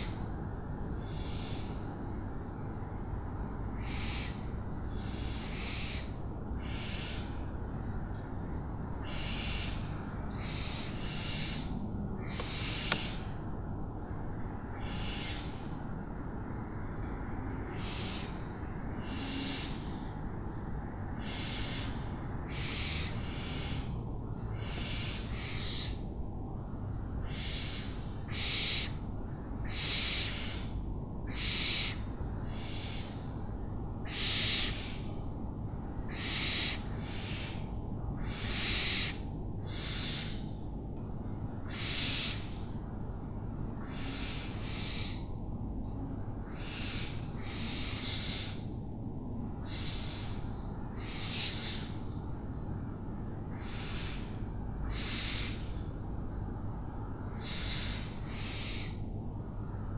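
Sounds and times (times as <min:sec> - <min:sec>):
low background rumble: 0:00.0 - 0:59.9
owls rasping screech calls: 0:01.0 - 0:01.8, 0:03.8 - 0:04.4, 0:05.0 - 0:07.3, 0:09.0 - 0:13.2, 0:14.8 - 0:15.5, 0:17.7 - 0:18.4, 0:24.6 - 0:26.0, 0:27.3 - 0:29.0, 0:29.6 - 0:30.7, 0:31.3 - 0:33.2, 0:34.0 - 0:35.1, 0:36.1 - 0:37.6, 0:38.2 - 0:40.4, 0:41.6 - 0:42.6, 0:43.8 - 0:45.3, 0:46.5 - 0:48.7, 0:49.6 - 0:50.4, 0:51.0 - 0:51.9, 0:53.5 - 0:55.7, 0:57.4 - 0:59.0.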